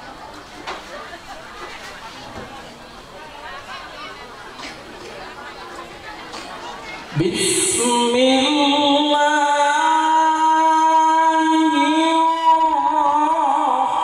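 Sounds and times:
man chanting through microphone: 0:07.1 - 0:14.0.

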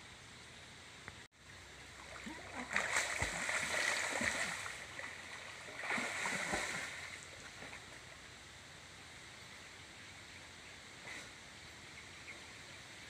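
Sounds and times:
faint rush of water: 0:00.0 - 0:13.0
water splashing from swimming: 0:01.9 - 0:08.0.

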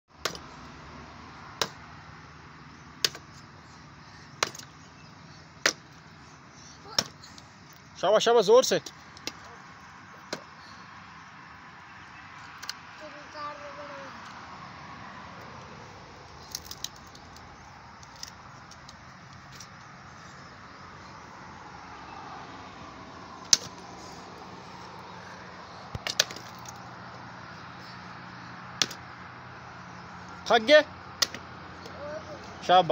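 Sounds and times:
axe chopping into a log: 0:00.2 - 0:00.5, 0:01.6 - 0:01.8, 0:03.0 - 0:03.3, 0:04.4 - 0:04.7, 0:05.6 - 0:05.9, 0:06.9 - 0:07.3, 0:10.3 - 0:10.5, 0:23.4 - 0:23.8, 0:25.9 - 0:26.6, 0:28.8 - 0:29.0, 0:31.2 - 0:31.5
firewood pieces knocking: 0:25.9 - 0:26.8.

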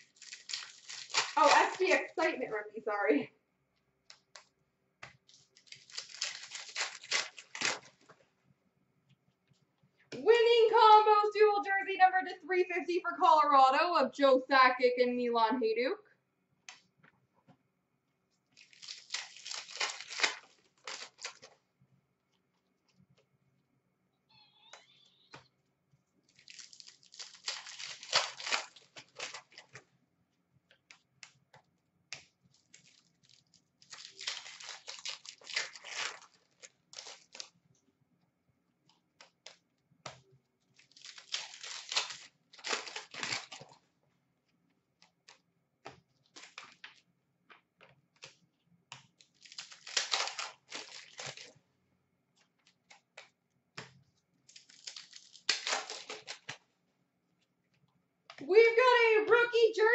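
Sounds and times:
foil packs tearing and crinkling: 0:00.0 - 0:02.4, 0:05.2 - 0:08.1, 0:18.5 - 0:21.6, 0:26.3 - 0:29.8, 0:32.5 - 0:37.6, 0:40.7 - 0:43.8, 0:46.2 - 0:47.0, 0:49.2 - 0:51.6, 0:54.5 - 0:56.6
cards clicking and tapping: 0:45.0 - 0:49.4, 0:52.4 - 0:54.1.

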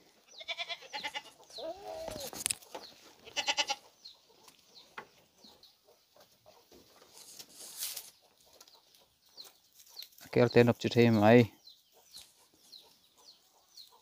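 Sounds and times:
goats bleating: 0:00.4 - 0:02.3, 0:03.2 - 0:03.9.

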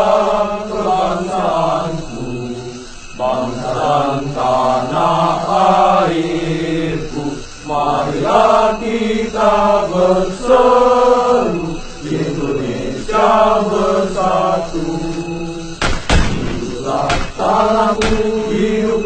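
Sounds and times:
voice chanting long notes: 0:16.6 - 0:19.0.

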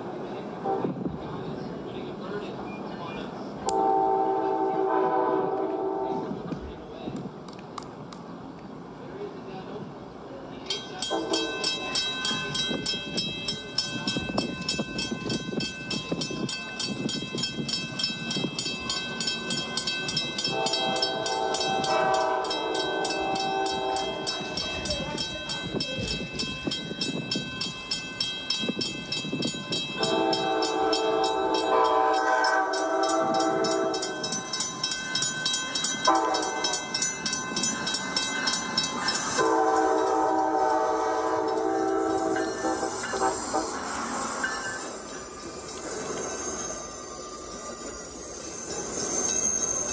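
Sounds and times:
train horn chord blasts: 0:03.7 - 0:06.3, 0:20.4 - 0:24.3, 0:30.0 - 0:34.2, 0:36.0 - 0:36.7, 0:39.4 - 0:43.8.

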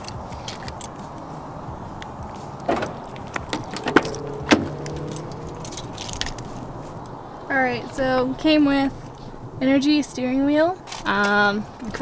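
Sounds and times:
keys jangling: 0:00.0 - 0:01.3, 0:02.4 - 0:06.7
car door handle clicks: 0:02.6 - 0:05.5.

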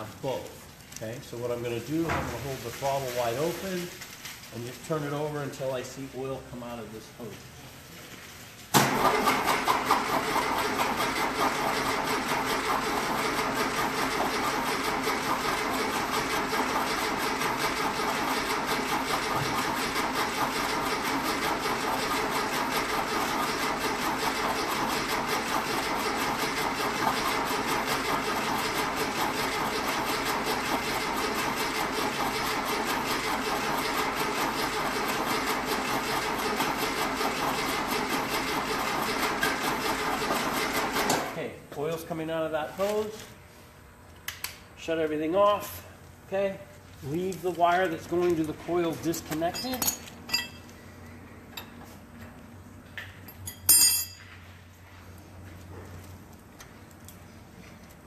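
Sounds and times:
starter motor cranking engine: 0:08.7 - 0:41.4.

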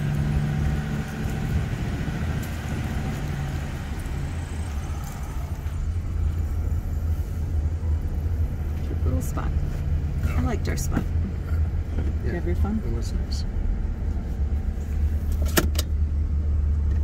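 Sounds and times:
vehicle engine and road hum: 0:00.0 - 0:17.0.

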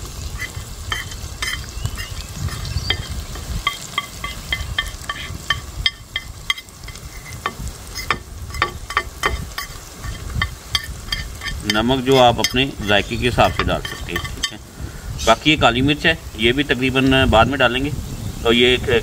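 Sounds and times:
food sizzling in pot: 0:00.0 - 0:19.0
metal spoon clinking on plate: 0:00.4 - 0:14.6.

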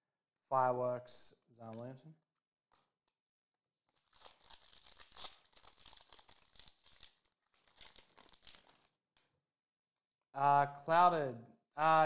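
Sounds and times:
foil wrapper crinkling and tearing: 0:03.9 - 0:09.0.

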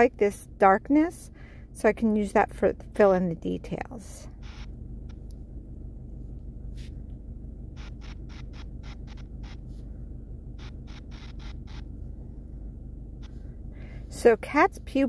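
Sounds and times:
low steady hum: 0:00.0 - 0:15.0
stylus scratching touchscreen: 0:07.8 - 0:09.7, 0:10.6 - 0:11.9.

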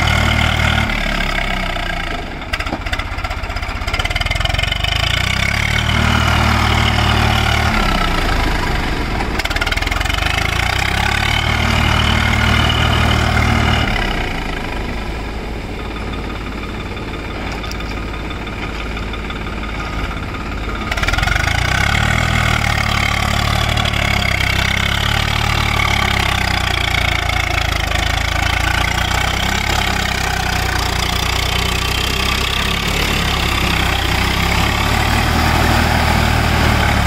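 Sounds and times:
tractor diesel engine running: 0:00.0 - 0:37.0
rotavator churning wet soil: 0:20.9 - 0:37.0.

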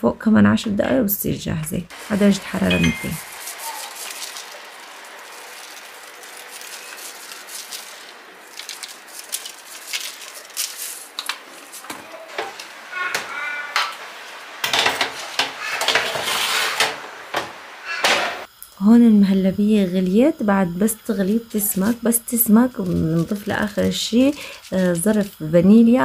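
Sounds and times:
metal baking tray scraping: 0:14.6 - 0:18.5.

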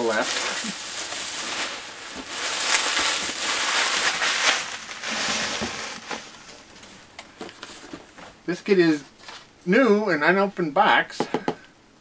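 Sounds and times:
bubble wrap crinkling: 0:00.0 - 0:09.5.

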